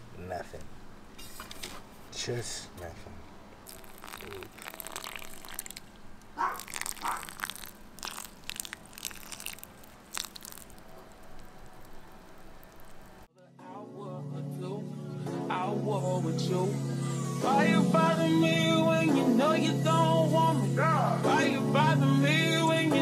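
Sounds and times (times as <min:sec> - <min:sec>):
water splashing onto soil and leaves: 0:03.7 - 0:13.3.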